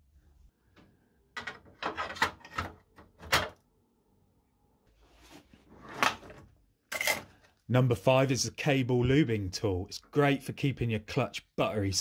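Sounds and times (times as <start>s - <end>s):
tools clattering in metal tray: 1.4s - 3.5s, 6.9s - 7.4s
drawer sliding open: 5.2s - 6.5s.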